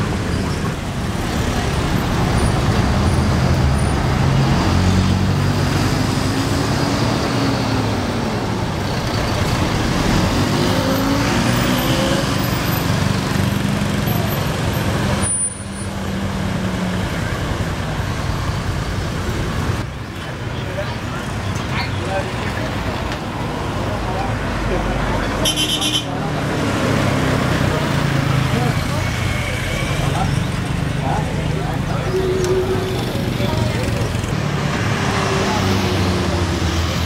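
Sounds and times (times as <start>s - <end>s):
bus diesel engines: 0.0s - 37.0s.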